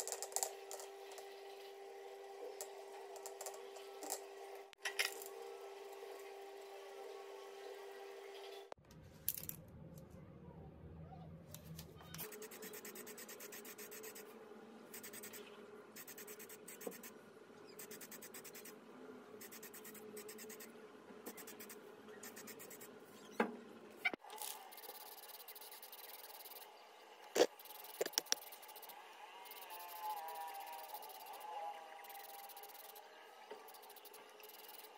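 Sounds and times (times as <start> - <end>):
spray paint can hissing: 24.4 - 26.7, 27.3 - 31.4, 32.0 - 33.0.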